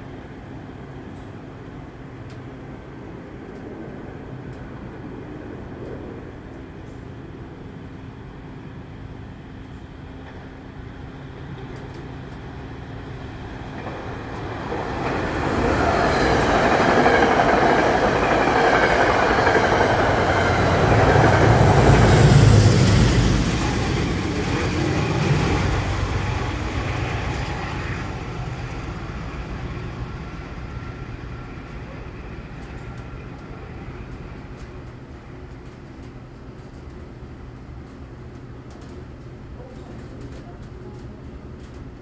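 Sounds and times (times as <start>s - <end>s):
train rumbling past: 0.0s - 42.0s.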